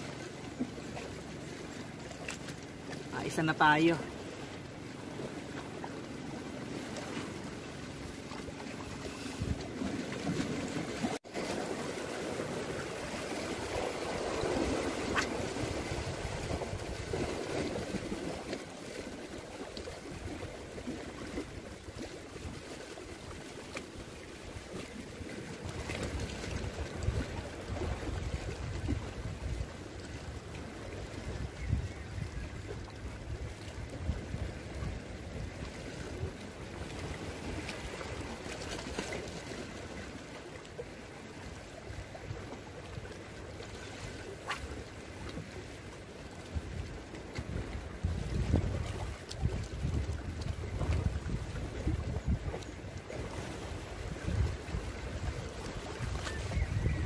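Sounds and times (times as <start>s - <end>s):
wind rumbling on microphone: 3.1s - 38.7s, 46.4s - 57.0s
sea water washing among rocks: 6.4s - 29.6s, 46.6s - 52.4s.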